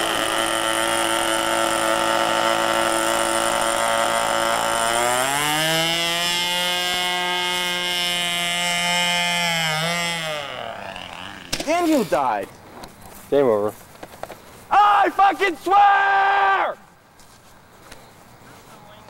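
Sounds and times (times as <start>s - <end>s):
model airplane engine running: 0.0s - 12.1s.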